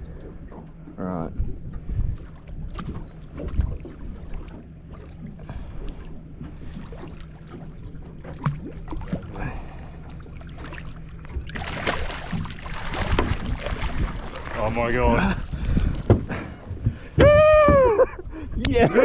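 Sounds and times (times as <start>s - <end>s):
boat motor idling: 0.0s - 18.3s
small splashes and knocks: 1.7s - 18.0s
fish thrashing at surface: 10.4s - 16.4s.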